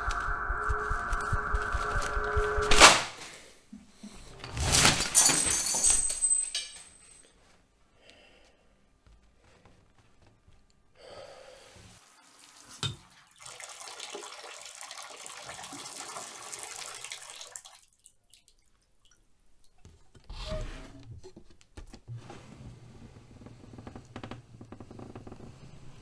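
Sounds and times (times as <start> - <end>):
water running: 11.9 - 20.2.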